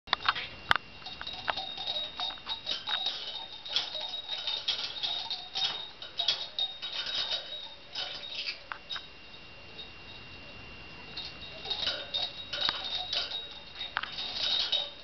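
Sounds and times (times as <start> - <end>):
small metal bell tinkling: 0.9 - 15.0
toy clattering: 1.0 - 9.1, 11.2 - 15.0.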